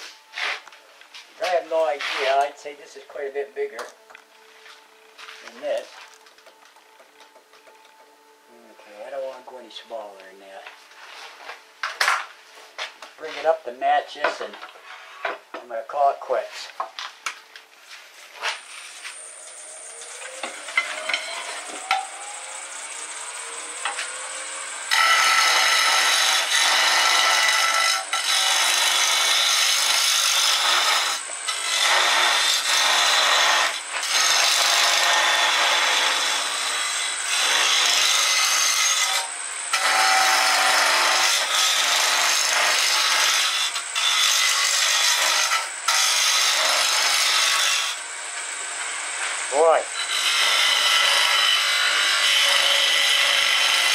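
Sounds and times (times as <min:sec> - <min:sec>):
chisel scraping wood: 0:14.3 - 0:15.4
lathe motor whirring: 0:18.6 - 0:53.9.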